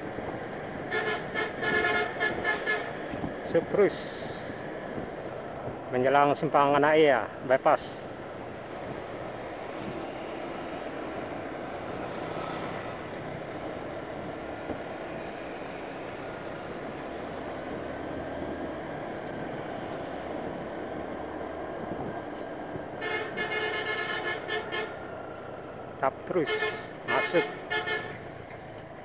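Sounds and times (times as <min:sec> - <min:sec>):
motorcycle road and wind noise: 0:00.0 - 0:29.0
bus musical horn chord: 0:00.9 - 0:03.0, 0:23.0 - 0:25.0, 0:26.4 - 0:28.2.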